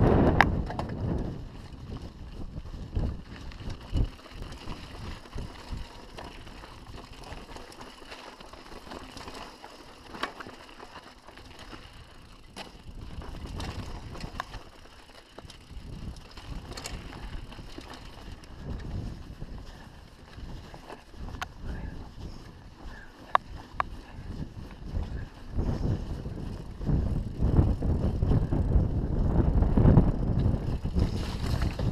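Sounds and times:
bike knocking and rattling: 0:00.0 - 0:31.9
tyres crunching over stones: 0:30.6 - 0:31.9.

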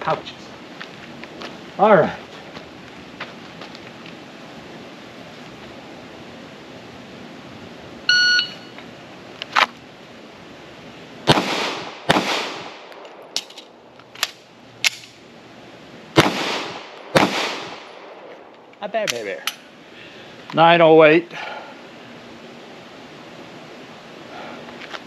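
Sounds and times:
shot timer beep: 0:08.1 - 0:08.8
pistol shots with echo: 0:11.3 - 0:12.9, 0:16.2 - 0:17.9
magazine reload clicks: 0:12.9 - 0:15.2, 0:19.0 - 0:19.6.

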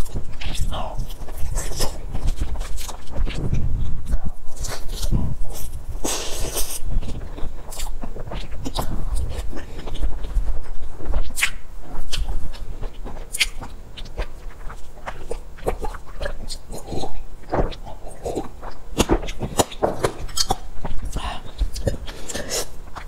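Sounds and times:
wet chewing with lip smacks: 0:00.0 - 0:23.0.

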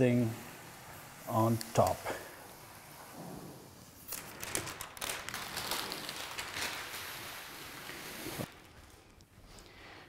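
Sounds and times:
plastic film crinkling: 0:03.9 - 0:09.6.

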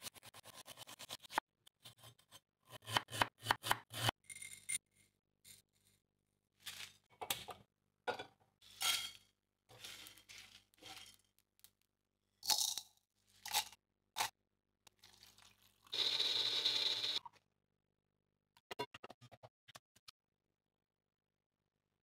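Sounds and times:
spices stirred in a dry pan: 0:09.7 - 0:11.6
water pouring into a jar: 0:14.9 - 0:16.0.

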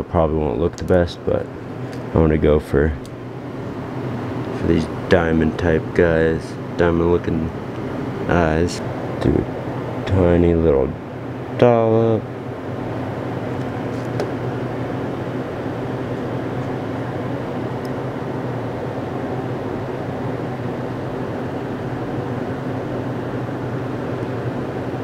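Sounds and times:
machine humming: 0:00.0 - 0:25.0.

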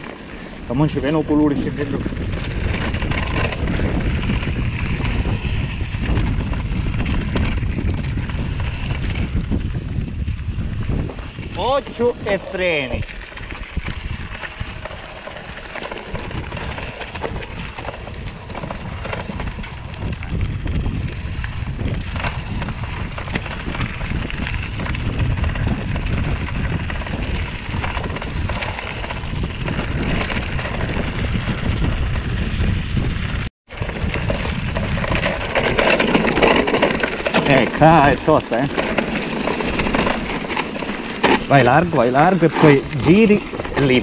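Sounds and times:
bike frame rattling: 0:00.0 - 0:44.0
wind rumbling on microphone: 0:00.0 - 0:44.0
tyres crunching over gravel: 0:11.0 - 0:31.6, 0:33.7 - 0:44.0.

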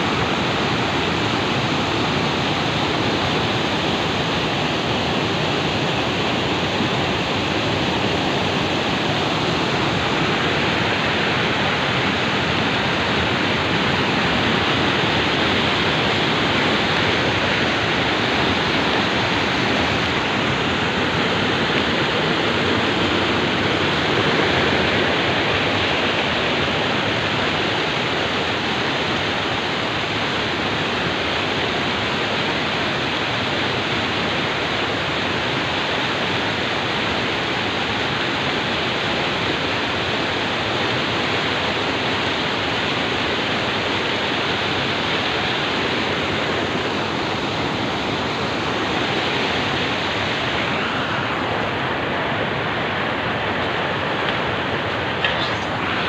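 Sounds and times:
loud rushing noise: 0:07.1 - 0:28.5, 0:47.6 - 0:56.0.

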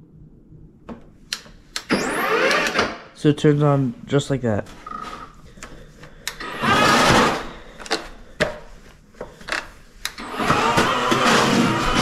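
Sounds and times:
control clicks: 0:01.3 - 0:02.8
electric snowblower motor spinning: 0:06.4 - 0:07.4, 0:10.2 - 0:12.0.

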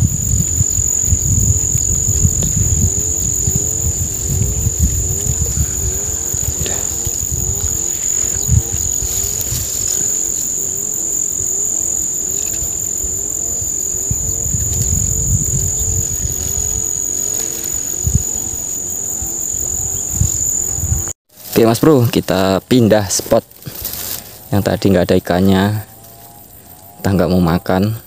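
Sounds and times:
uneven low rumble: 0:00.0 - 0:21.1
lower repeating call: 0:00.0 - 0:21.2
high-pitched insect chorus: 0:00.0 - 0:28.0.

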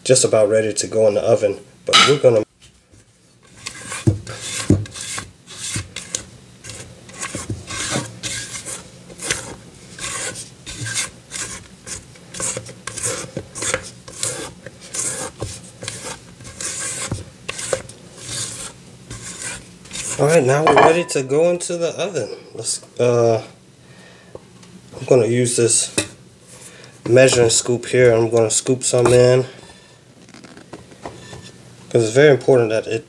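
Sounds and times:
utensil scraping mixing bowl: 0:03.5 - 0:21.4.

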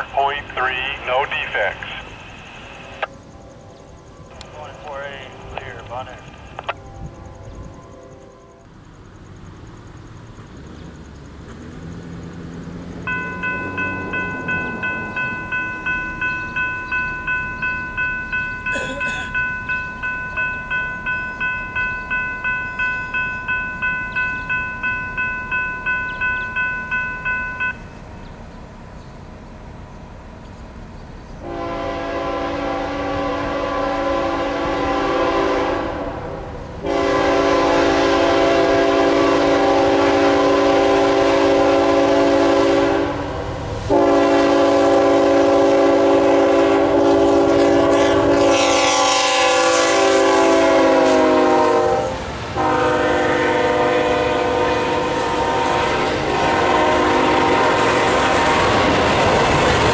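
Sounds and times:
train wheel and engine noise: 0:00.0 - 0:59.9
locomotive air horn blasts: 0:31.4 - 0:59.9.

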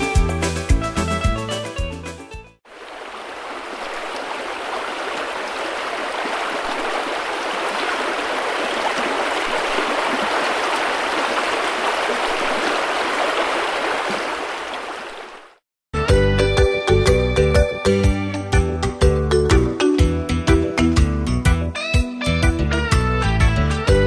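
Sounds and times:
water rushing over rocks: 0:02.7 - 0:15.6.

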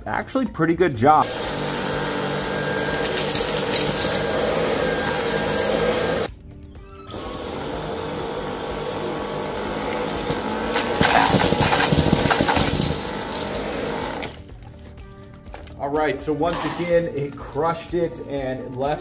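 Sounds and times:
debris rattling in vacuum: 0:01.2 - 0:06.3, 0:07.4 - 0:14.4
vacuum cleaner motor whine: 0:01.2 - 0:06.3, 0:07.1 - 0:14.4.

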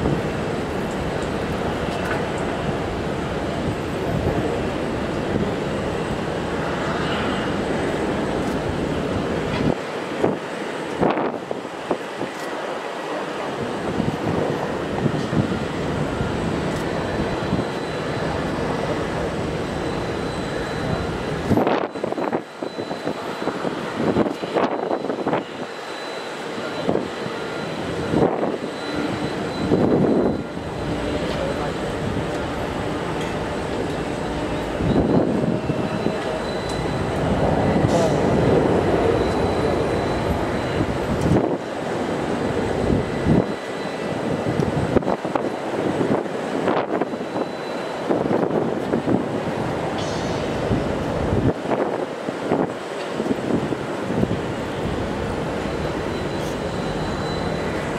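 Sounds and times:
jet aircraft roar: 0:00.0 - 0:57.9
thin high-pitched whine: 0:14.8 - 0:45.8, 0:53.0 - 0:57.9.

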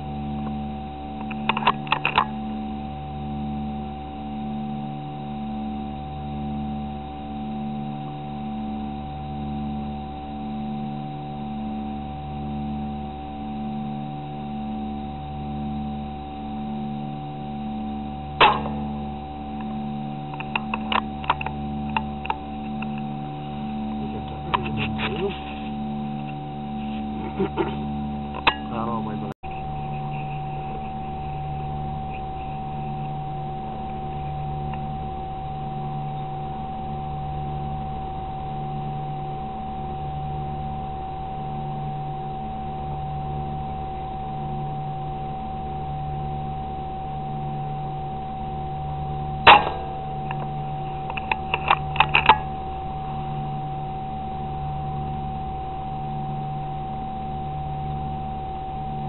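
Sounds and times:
constant high whine: 0:00.0 - 0:59.0
steady hum with low drone: 0:00.0 - 0:59.0
air rifle shot: 0:18.4 - 0:19.0, 0:49.5 - 0:50.2.

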